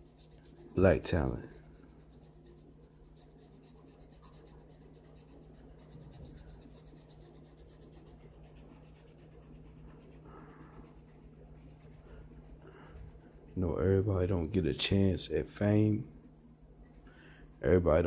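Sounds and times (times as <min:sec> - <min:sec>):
pencil scratching on paper: 0:00.0 - 0:14.0
low electrical hum: 0:00.0 - 0:18.0.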